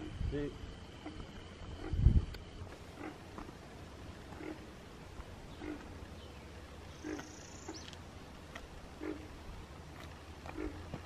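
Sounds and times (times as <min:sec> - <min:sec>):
steady low hum: 0:00.0 - 0:11.0
low grunting animal calls: 0:01.0 - 0:03.6, 0:04.2 - 0:04.8, 0:05.4 - 0:06.2, 0:06.9 - 0:07.9, 0:08.9 - 0:09.5, 0:10.4 - 0:11.0.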